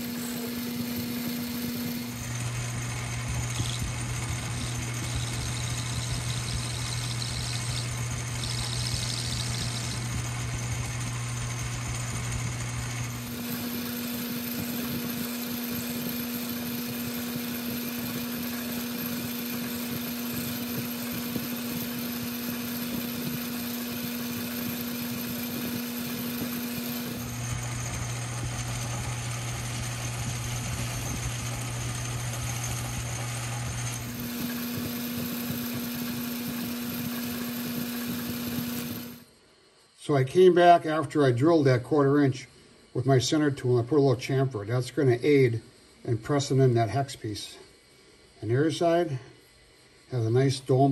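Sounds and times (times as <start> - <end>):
metal lathe running: 0.0 - 39.2.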